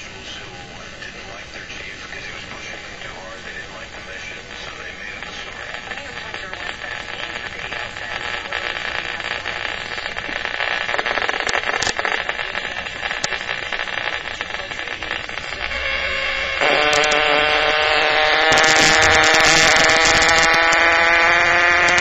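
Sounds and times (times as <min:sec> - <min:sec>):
electronic hiss and crackle: 0:00.0 - 0:22.0
buzzing alarm tone: 0:04.8 - 0:22.0.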